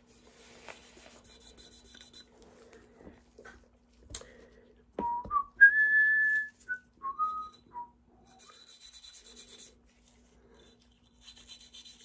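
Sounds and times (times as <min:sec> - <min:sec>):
man whistling: 0:05.0 - 0:08.0
brush scrubbing metal parts: 0:08.2 - 0:12.0.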